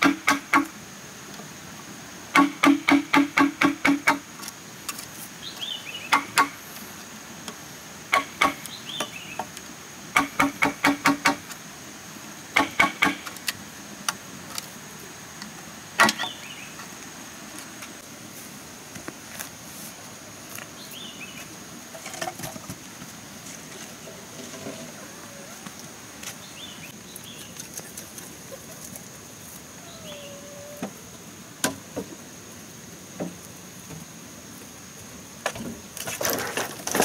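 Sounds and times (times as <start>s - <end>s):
mallet striking chisel into bamboo: 2.4s - 4.2s.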